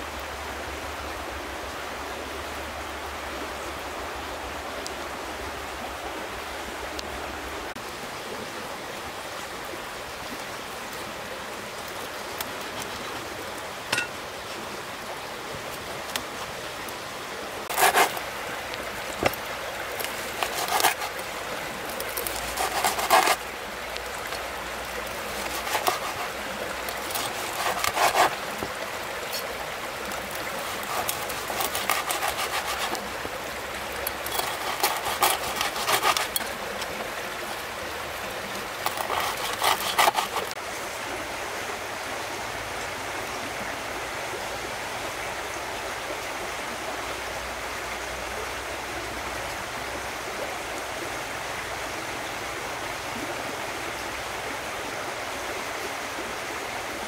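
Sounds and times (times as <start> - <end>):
stream rushing: 0.0 - 57.0.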